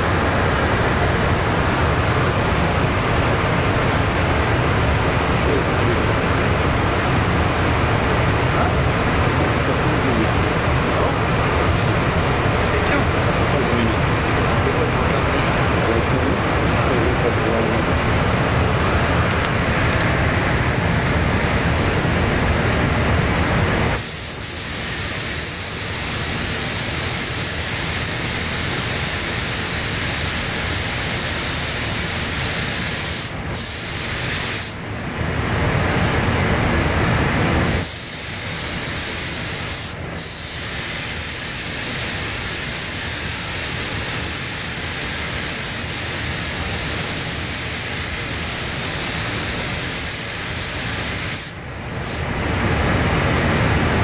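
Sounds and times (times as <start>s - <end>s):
spray gun hissing: 24.0s - 34.8s, 37.6s - 52.3s.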